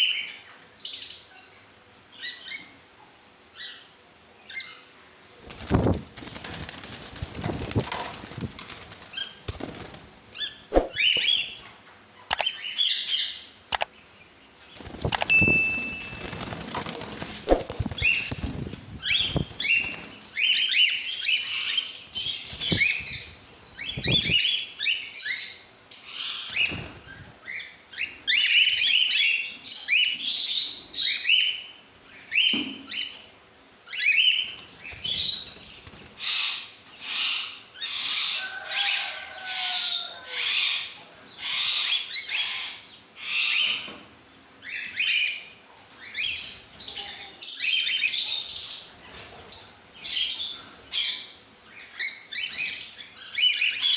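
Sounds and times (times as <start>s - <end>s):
cockatiels chirping and screeching: 17.9s - 25.4s.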